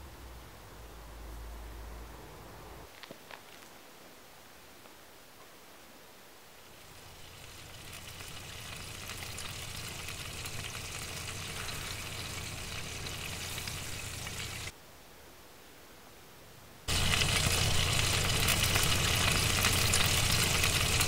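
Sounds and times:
roast chicken sizzling: 6.8s - 14.7s, 16.9s - 21.0s
low hum: 6.9s - 14.7s, 16.9s - 21.0s.

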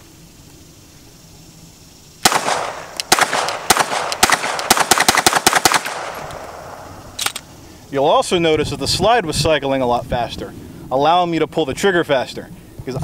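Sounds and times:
rapid pistol shots: 2.2s - 7.4s.

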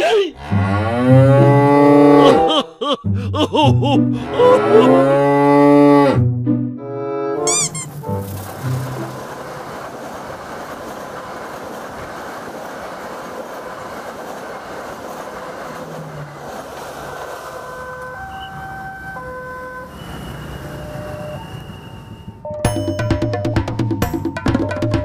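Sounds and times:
passenger train passing: 6.8s - 23.5s
electronic two-note tones: 7.1s - 8.9s
wheels rushing on rails: 7.4s - 25.0s.

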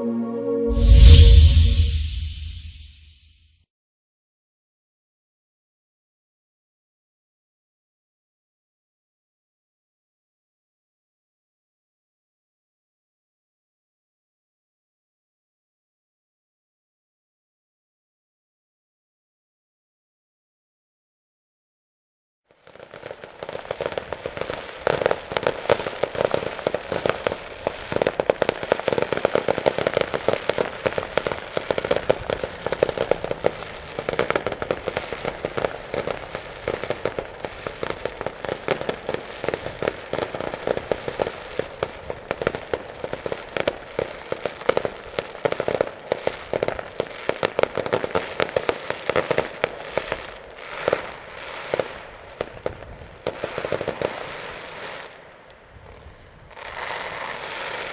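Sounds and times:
fireworks bangs and crackling: 22.6s - 57.9s.

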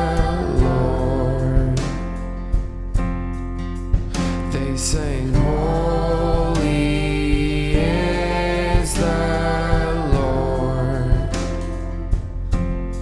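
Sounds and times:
man singing: 0.0s - 2.2s, 4.2s - 12.2s
slow drum beat: 0.0s - 13.0s
strummed acoustic guitar: 0.0s - 13.0s
sustained chords: 4.3s - 13.0s.

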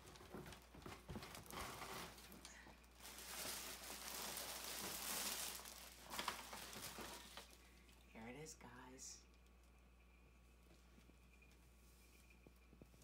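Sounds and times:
plastic wrap crinkling and tearing: 0.0s - 7.6s.

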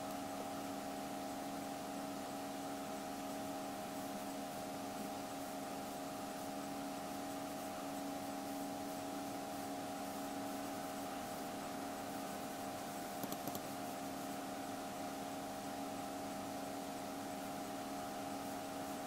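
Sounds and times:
electrical hum: 0.0s - 2.8s, 12.8s - 13.8s
quick clicks: 13.2s - 13.6s.

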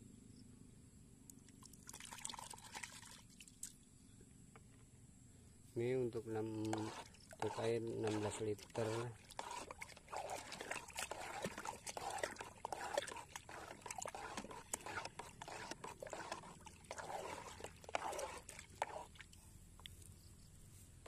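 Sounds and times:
liquid sloshing and swishing: 1.5s - 3.8s, 6.2s - 19.6s.

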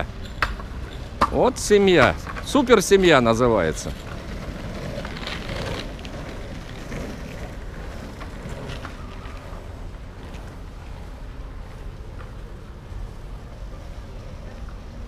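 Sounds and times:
wheels rolling on asphalt: 0.0s - 15.0s.

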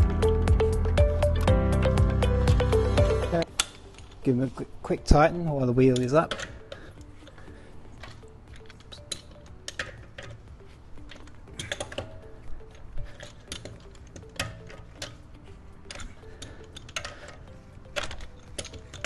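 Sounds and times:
faint background music: 0.0s - 19.0s
lug wrench clicking on nuts: 5.8s - 15.2s, 15.8s - 19.0s.

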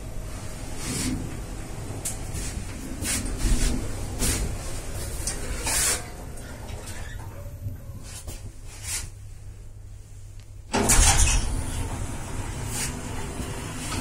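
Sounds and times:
lift car humming: 0.0s - 7.9s, 10.7s - 14.0s
lift doors clattering: 10.7s - 14.0s.

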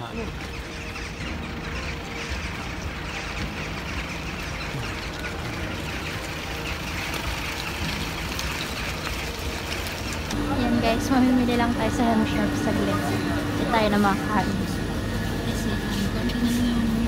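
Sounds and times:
flock of birds calling: 0.0s - 17.0s
street traffic rumble: 0.0s - 17.0s.

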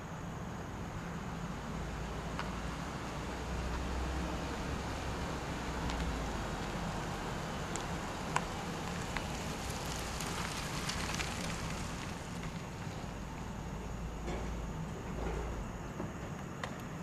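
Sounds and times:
car engine and tyre rumble: 0.0s - 17.0s
faint clicks and crackles: 7.7s - 12.8s.

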